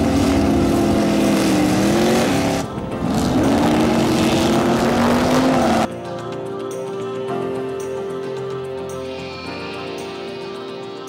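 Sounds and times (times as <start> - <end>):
car engine accelerating: 0.0 - 5.9.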